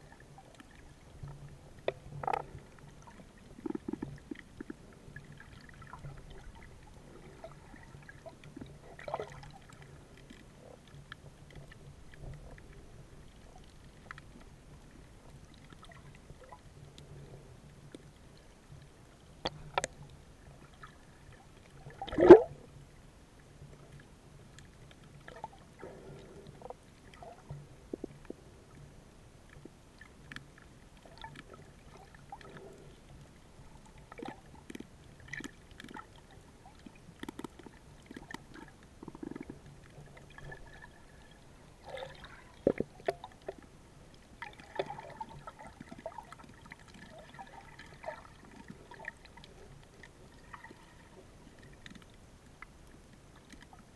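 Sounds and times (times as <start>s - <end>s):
faint underwater hum: 0.0s - 53.9s
small clicks: 37.2s - 38.5s.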